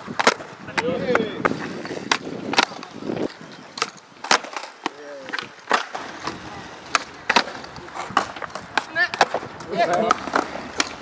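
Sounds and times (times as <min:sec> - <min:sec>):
skateboard pops and clacks: 0:00.0 - 0:11.0
wheels rolling on concrete: 0:00.0 - 0:11.0.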